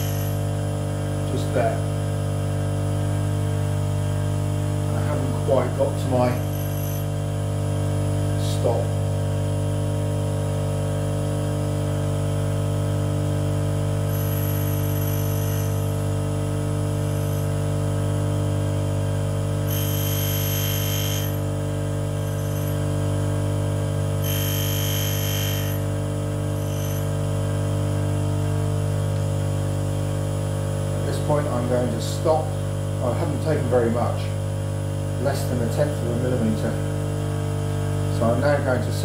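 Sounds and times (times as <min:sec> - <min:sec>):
high grinding hiss: 0:00.0 - 0:00.4, 0:05.1 - 0:07.2, 0:14.1 - 0:15.9, 0:17.0 - 0:17.5, 0:19.7 - 0:21.4, 0:22.2 - 0:22.8, 0:24.2 - 0:25.9, 0:26.6 - 0:27.1
grinder motor hum: 0:00.0 - 0:39.0.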